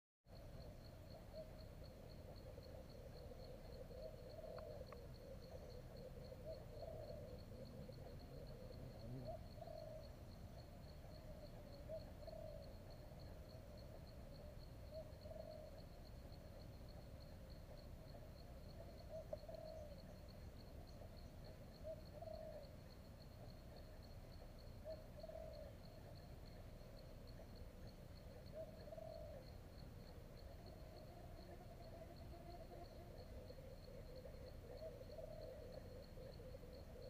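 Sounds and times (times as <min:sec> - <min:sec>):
insect trilling: 0:00.3 - 0:37.0
distant calls: 0:00.4 - 0:37.0
faint ticks: 0:04.0 - 0:09.4, 0:11.7 - 0:30.7.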